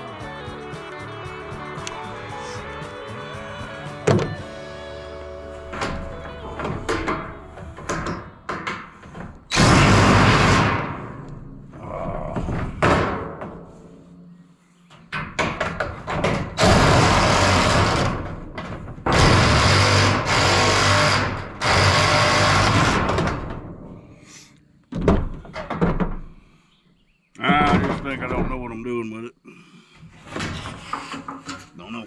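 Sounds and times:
drill cutting sheet metal: 9.5s - 11.0s, 16.6s - 18.3s, 19.1s - 23.2s.

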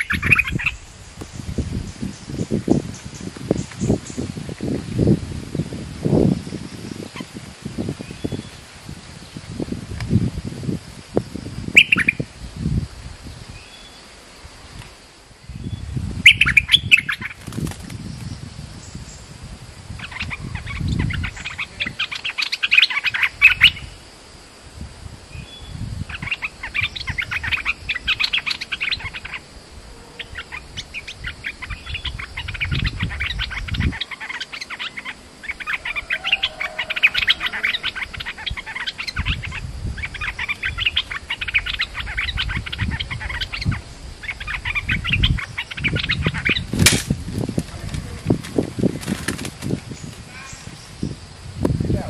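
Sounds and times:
bird chattering calls: 0.0s - 1.0s, 11.8s - 12.2s, 16.2s - 17.4s, 20.0s - 24.0s, 26.1s - 46.9s.

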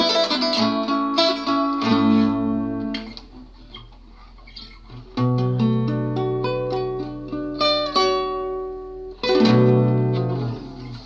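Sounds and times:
classical guitar fingerstyle: 0.0s - 11.0s.

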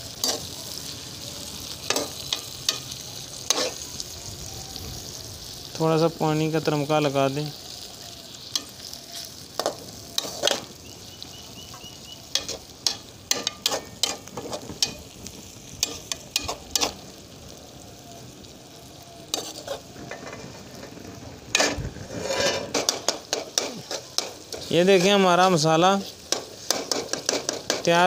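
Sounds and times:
masala sizzling in oil: 0.0s - 28.0s
metal spoon scraping pan: 1.9s - 3.8s, 9.6s - 10.7s, 12.3s - 15.0s, 15.8s - 17.0s, 19.3s - 20.9s, 21.5s - 25.2s, 26.1s - 27.9s.

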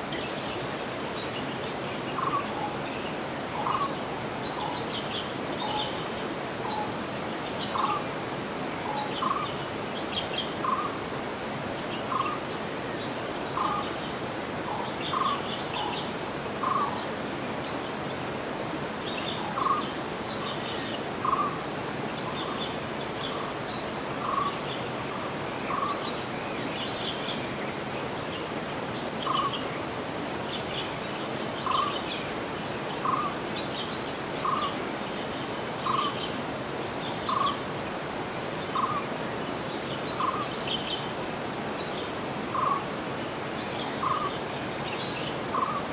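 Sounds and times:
birds chirping: 0.0s - 8.0s, 8.7s - 45.9s
outdoor background hiss: 0.0s - 45.9s.

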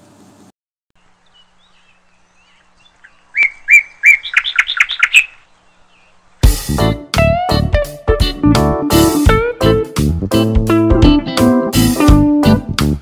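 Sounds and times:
bird chirping: 1.0s - 6.4s.

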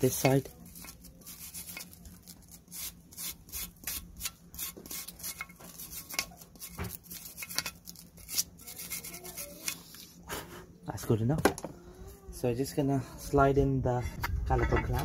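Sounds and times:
wire brush scrubbing metal: 0.0s - 10.2s.

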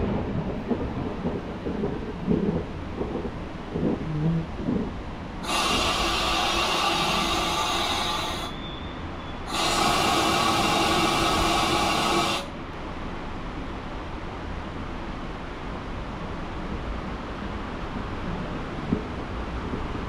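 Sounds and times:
train running rumble: 0.0s - 20.0s
loud hissing bursts: 5.4s - 12.6s.

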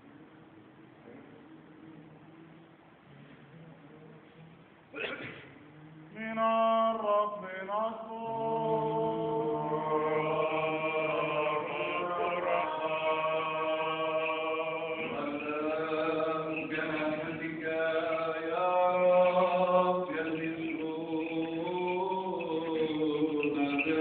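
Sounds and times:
person chanting long notes: 5.7s - 24.0s.

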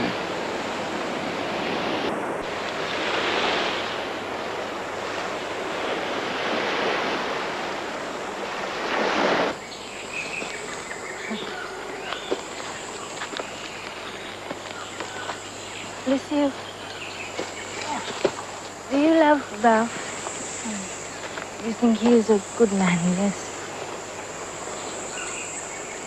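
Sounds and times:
high insect drone: 0.0s - 26.0s
surf breaking: 1.0s - 9.6s.

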